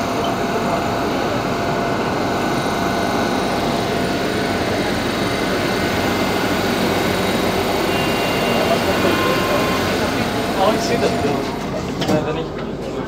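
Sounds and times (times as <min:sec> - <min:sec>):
train car hum and rush: 0:00.0 - 0:13.0.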